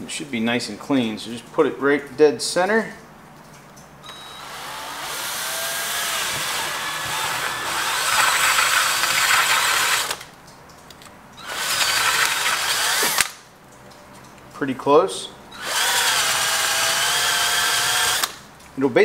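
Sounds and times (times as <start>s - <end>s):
power drill cutting plastic: 4.1s - 10.3s, 11.4s - 13.4s, 15.6s - 18.4s.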